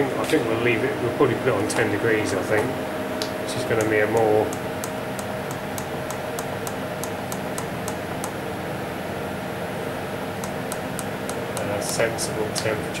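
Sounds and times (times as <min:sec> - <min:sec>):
refrigeration unit humming: 0:00.0 - 0:13.0
light button ticks: 0:03.2 - 0:08.4, 0:10.4 - 0:12.0.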